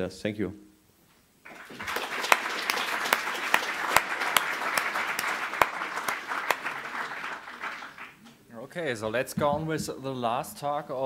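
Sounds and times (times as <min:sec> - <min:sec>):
audience applauding: 0:01.5 - 0:08.3.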